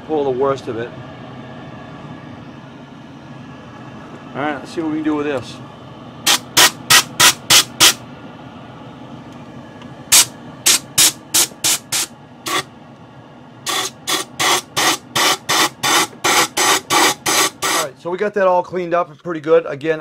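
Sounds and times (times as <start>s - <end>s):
exhaust fan hum: 0.0s - 20.0s
compressed air blasts: 6.2s - 8.0s, 10.1s - 12.7s, 13.7s - 17.9s.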